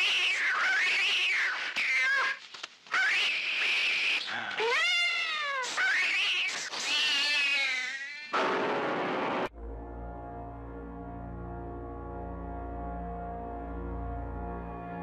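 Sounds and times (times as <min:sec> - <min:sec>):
cat yowling: 0:04.6 - 0:06.2.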